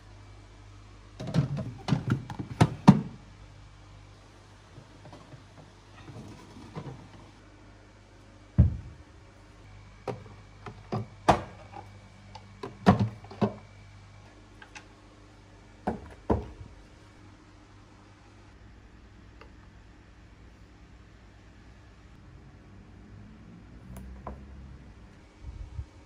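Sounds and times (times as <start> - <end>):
low hum: 7.0 - 26.0
plastic containers clunking: 12.6 - 13.6.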